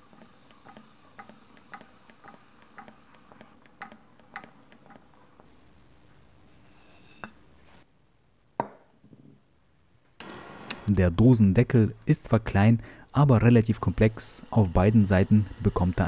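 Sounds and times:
faint regular ticking: 0.1s - 5.5s.

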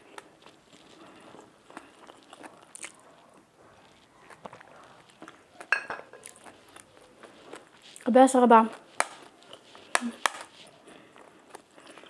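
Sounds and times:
person chewing food: 0.0s - 12.0s.

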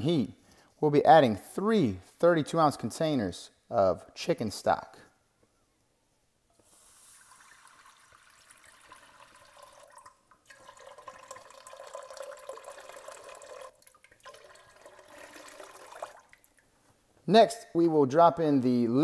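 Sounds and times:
stock pouring into a pot: 6.6s - 16.7s.

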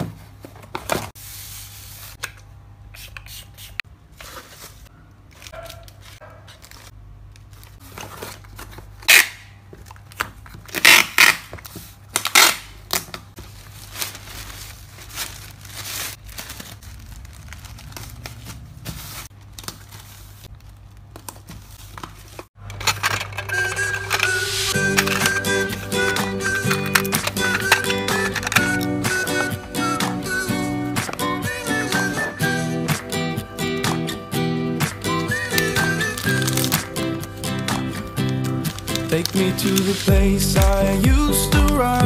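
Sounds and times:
paper packaging rustling: 4.2s - 9.1s, 9.8s - 32.7s, 34.8s - 42.0s
packaging ripping: 5.4s - 11.5s, 12.1s - 25.4s, 26.0s - 29.5s, 34.8s - 41.0s.

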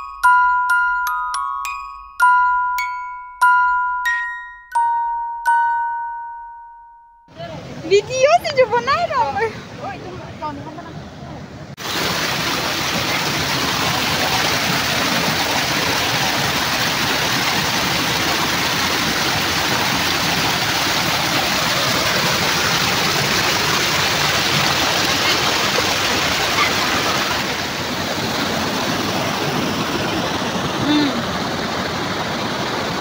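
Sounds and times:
river water pouring over rocks: 11.8s - 33.0s.

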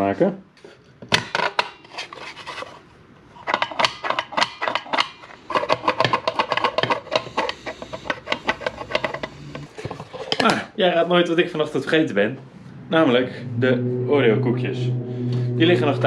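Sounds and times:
plastic dispenser clicking and rattling: 3.4s - 10.6s.

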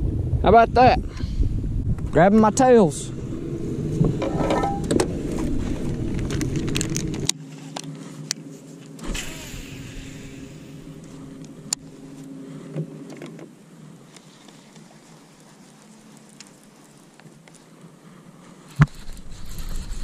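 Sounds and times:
wind rumble on microphone: 0.0s - 7.3s, 18.8s - 20.0s
fishing line hiss: 9.0s - 12.2s
electric motor humming: 9.0s - 13.1s.

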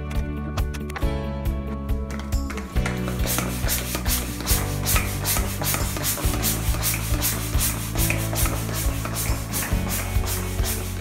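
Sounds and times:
background music: 0.0s - 11.0s
hand air pump puffs: 2.5s - 11.0s.

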